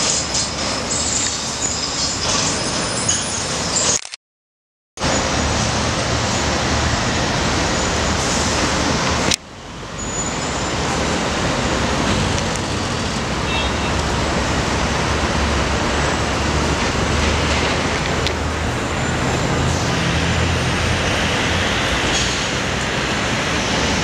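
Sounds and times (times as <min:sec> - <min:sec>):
city traffic: 0:00.0 - 0:04.2, 0:05.0 - 0:24.0
diesel trucks idling: 0:10.7 - 0:24.0.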